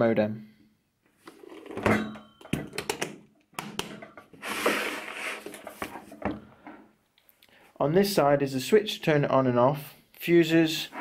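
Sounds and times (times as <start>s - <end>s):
case scraping on table: 1.2s - 2.1s, 4.2s - 6.4s.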